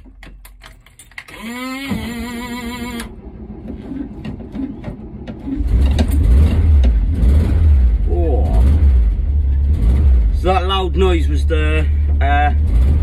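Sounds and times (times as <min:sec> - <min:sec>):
engine starting with low rumble: 0:00.8 - 0:13.0
starter motor cranking whine: 0:01.2 - 0:07.1.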